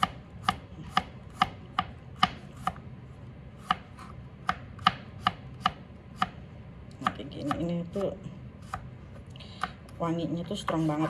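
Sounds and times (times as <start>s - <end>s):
knife chopping on plastic board: 0.0s - 2.8s, 3.6s - 6.4s, 9.6s - 9.9s.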